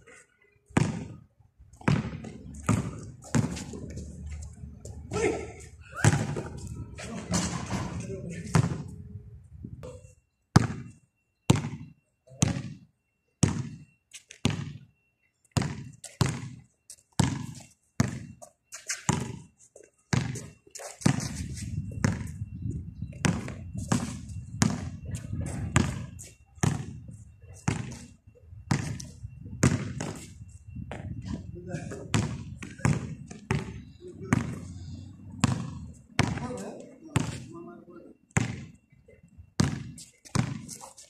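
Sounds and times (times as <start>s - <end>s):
basketball bouncing on concrete: 0.7s - 5.4s, 6.0s - 6.7s, 7.4s - 8.9s, 10.6s - 10.9s, 11.5s - 12.8s, 13.4s - 13.8s, 14.4s - 14.8s, 15.5s - 16.6s, 17.2s - 18.4s, 19.0s - 19.5s, 20.1s - 22.4s, 23.1s - 27.0s, 27.7s - 28.0s, 28.7s - 30.3s, 31.9s - 34.7s, 35.4s - 37.5s, 38.4s - 38.8s, 39.6s - 40.7s.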